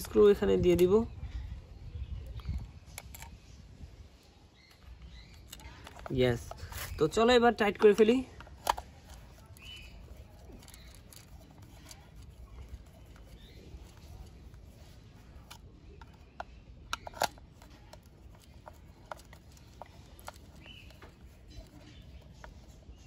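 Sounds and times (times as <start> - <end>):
light clicks of screws: 2.4 - 3.4, 7.7 - 22.8
screwdriver scraping: 4.7 - 23.0.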